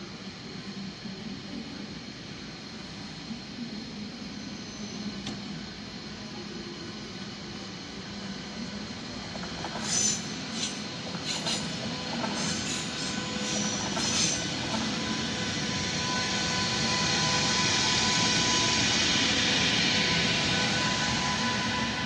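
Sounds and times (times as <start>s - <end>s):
electric locomotive whine: 0.0s - 22.0s
train rumble: 5.0s - 22.0s
high wheel squeals: 9.7s - 18.8s.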